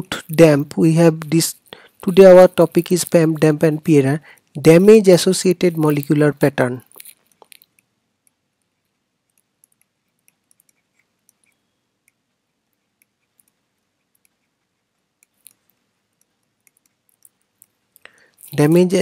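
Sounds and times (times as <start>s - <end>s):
stylus ticking on touchscreen: 7.7s - 18.1s.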